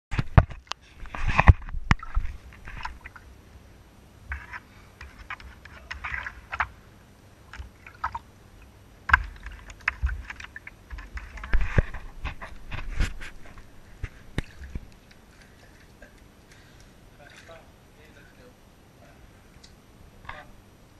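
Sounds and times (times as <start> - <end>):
bathwater splashing: 1.8 - 3.4, 4.3 - 17.7.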